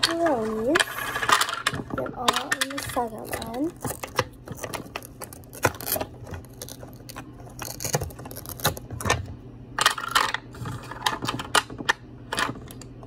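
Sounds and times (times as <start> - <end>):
wooden toy pieces clattering: 0.0 - 9.1.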